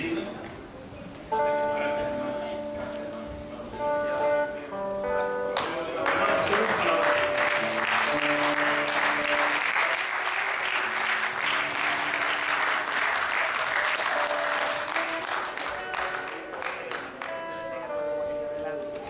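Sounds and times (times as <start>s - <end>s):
faint instrumental music: 0.0s - 19.0s
congregation applauding: 5.6s - 17.5s.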